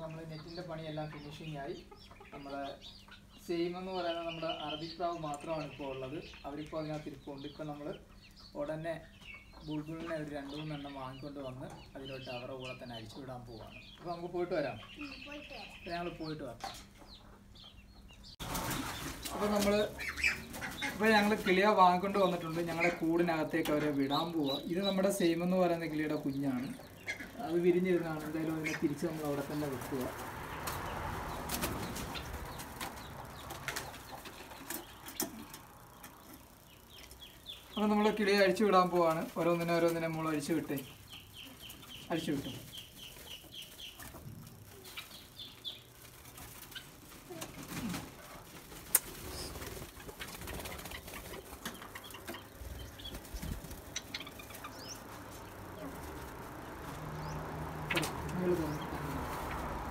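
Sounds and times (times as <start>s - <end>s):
dove wings flapping: 18.4s - 21.6s, 28.2s - 36.2s, 45.9s - 59.9s.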